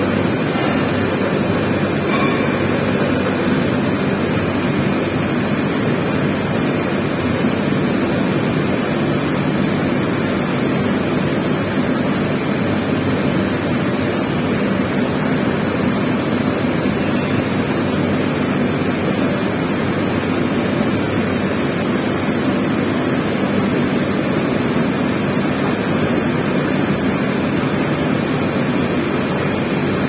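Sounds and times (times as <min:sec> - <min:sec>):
printing press running: 0:00.0 - 0:30.0.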